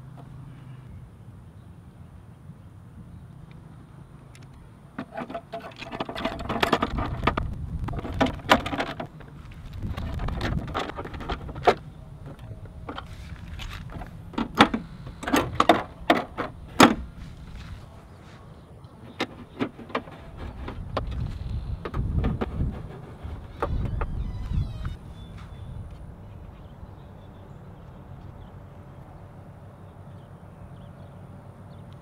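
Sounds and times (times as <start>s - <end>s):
low steady rumble: 5.8s - 19.6s.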